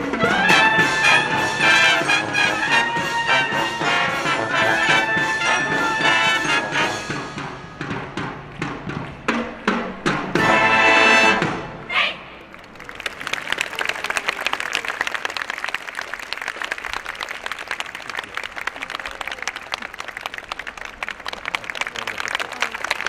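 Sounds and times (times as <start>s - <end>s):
marching band brass and percussion: 0.0s - 12.4s
crowd applauding: 12.4s - 23.0s.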